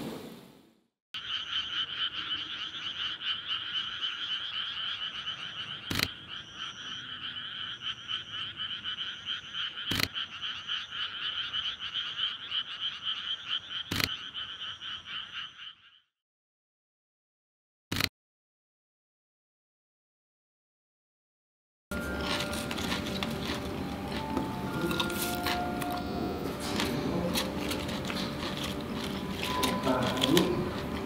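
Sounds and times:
frogs chorus trilling: 0:01.2 - 0:16.1, 0:22.0 - 0:31.0
sharp clicks: 0:05.9 - 0:06.1, 0:13.9 - 0:14.1.

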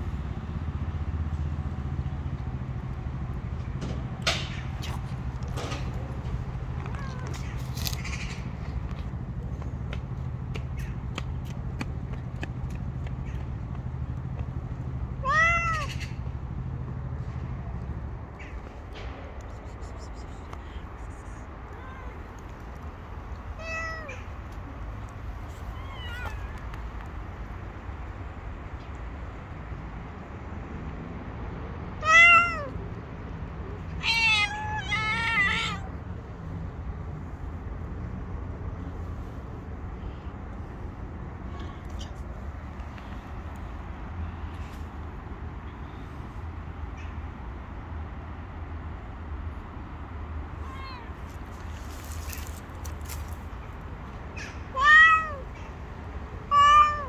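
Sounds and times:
cat meowing: 0:06.8 - 0:07.6, 0:15.2 - 0:16.0, 0:21.7 - 0:22.4, 0:23.6 - 0:24.3, 0:25.6 - 0:26.7, 0:32.0 - 0:32.8, 0:34.0 - 0:36.0, 0:50.6 - 0:51.2, 0:54.4 - 0:55.7, 0:56.5 - 0:57.0.

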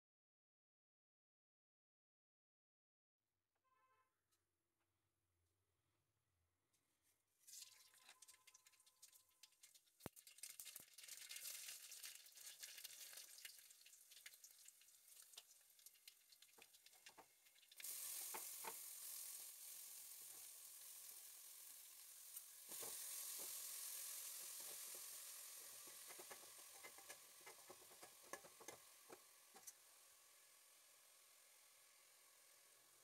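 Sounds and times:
food sizzling and popping in oil: 0:07.5 - 0:33.0.

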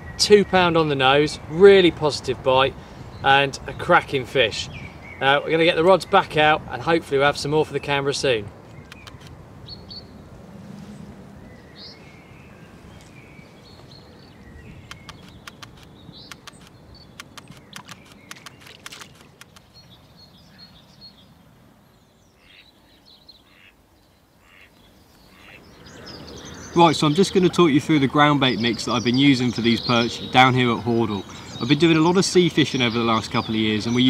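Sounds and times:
birds chirping: 0:00.0 - 0:34.0
low steady background noise: 0:00.0 - 0:34.0
sharp clicks: 0:08.6 - 0:09.4, 0:14.8 - 0:19.8.

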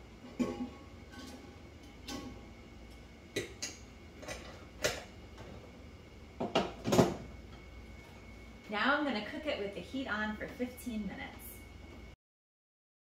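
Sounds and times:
metal pan and lid clanking: 0:00.4 - 0:01.4.

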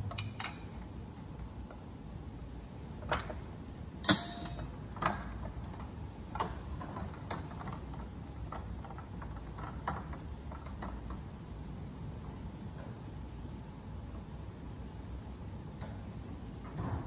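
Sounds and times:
metal engine parts clacking: 0:04.0 - 0:04.7.

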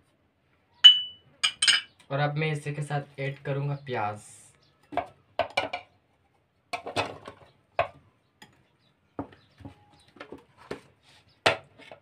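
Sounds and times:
bowl and chopper knocking: 0:00.9 - 0:01.8.

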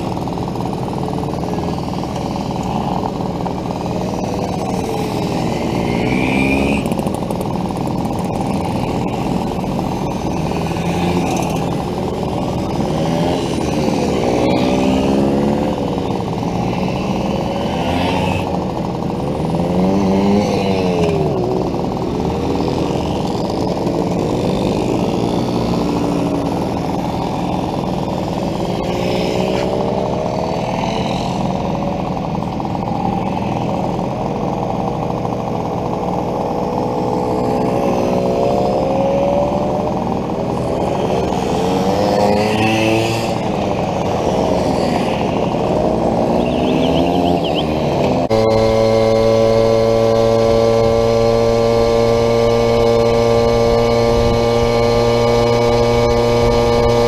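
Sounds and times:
mopeds buzzing past: 0:37.4 - 0:57.0.

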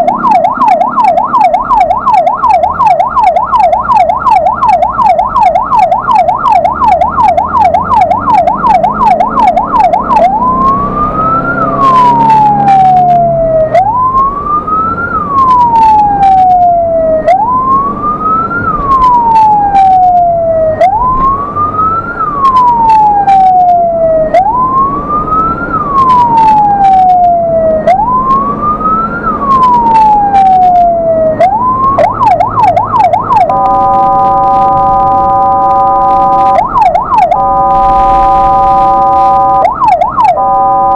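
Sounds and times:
ambulance siren: 0:00.0 - 0:40.9
horn blast: 0:37.3 - 0:39.7, 0:40.4 - 0:40.9.

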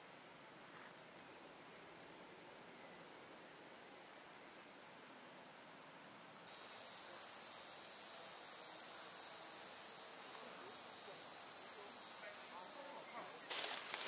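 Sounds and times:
faint hiss: 0:00.0 - 0:14.0
high-pitched insect chorus: 0:06.5 - 0:14.0.

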